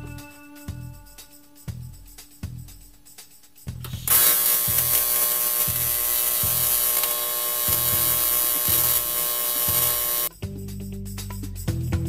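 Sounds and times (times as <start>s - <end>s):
electric arc welding buzzing hiss: 3.9s - 10.3s.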